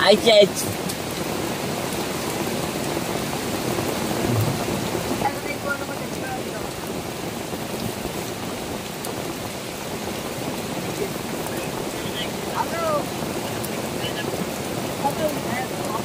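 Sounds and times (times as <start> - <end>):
steady rain falling: 0.0 - 16.0
soft low thump: 4.2 - 5.1.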